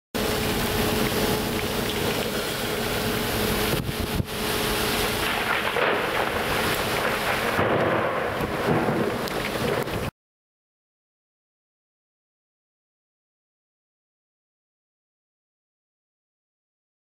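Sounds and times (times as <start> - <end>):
steady hum: 0.2 - 7.7
sea noise: 0.2 - 7.8
rushing wind: 0.2 - 10.1.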